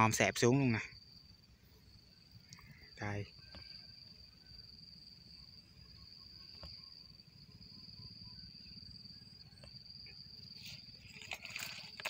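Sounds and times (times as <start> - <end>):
cricket chirping: 0.0 - 12.0
faint clicks: 2.5 - 2.7.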